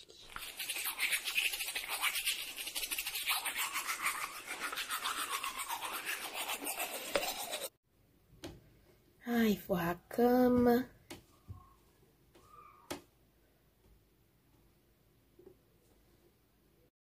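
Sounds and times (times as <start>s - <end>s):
toothbrush scrubbing teeth: 0.0s - 7.7s.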